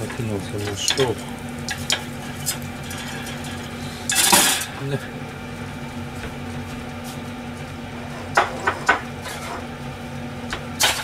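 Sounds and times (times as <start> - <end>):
steady low hum: 0.0 - 11.0
kitchenware clattering: 0.6 - 4.8, 8.1 - 9.7.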